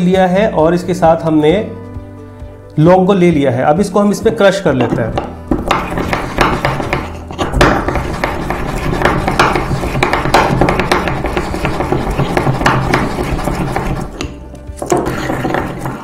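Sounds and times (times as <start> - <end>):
ceramic knocks: 4.8 - 16.0
pestle grinding in ceramic mortar: 4.8 - 16.0.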